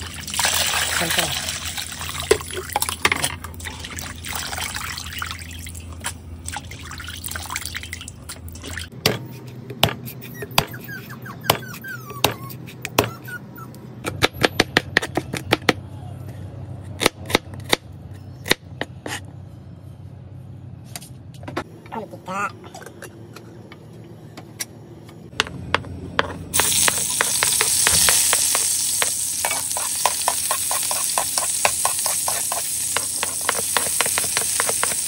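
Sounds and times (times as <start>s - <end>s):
knife chopping on cutting board: 29.5s - 35.0s.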